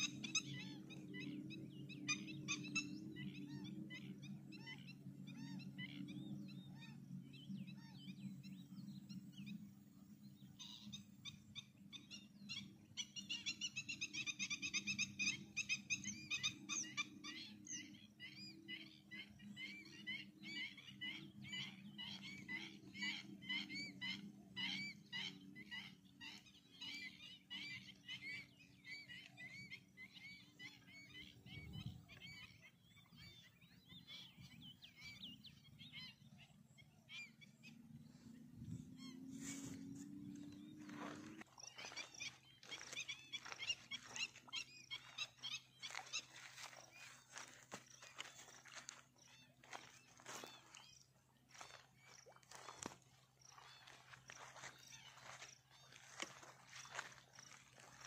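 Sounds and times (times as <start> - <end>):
high chirping animal calls: 18.4 - 58.0.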